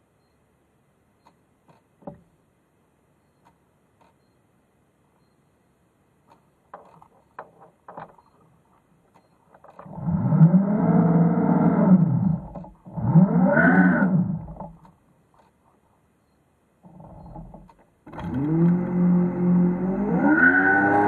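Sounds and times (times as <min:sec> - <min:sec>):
faint clicks: 0:01.2 - 0:01.9
electric thruster motors whining: 0:09.9 - 0:14.8, 0:16.9 - 0:21.0.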